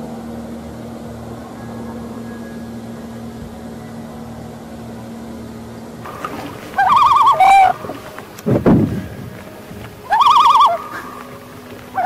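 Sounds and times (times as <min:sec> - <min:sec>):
steady low hum: 0:00.0 - 0:12.0
loon tremolo call: 0:06.0 - 0:12.0.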